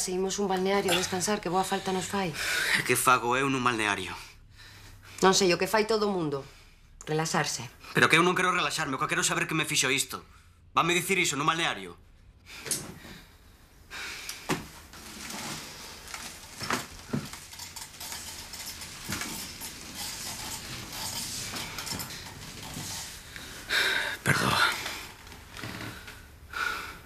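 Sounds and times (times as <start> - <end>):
small objects clinking and rustling: 15.3 - 23.1.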